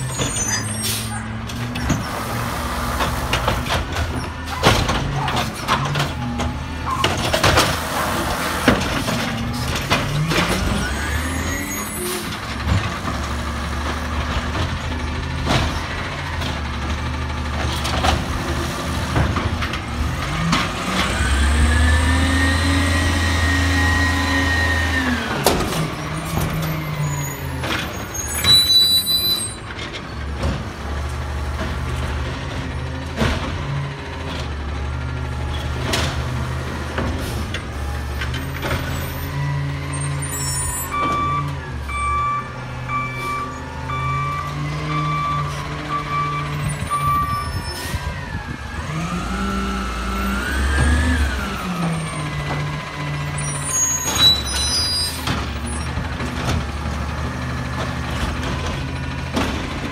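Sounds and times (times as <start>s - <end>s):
truck engine revving: 0.9s - 28.5s, 30.2s - 59.9s
reversing alarm beeping: 40.4s - 47.8s.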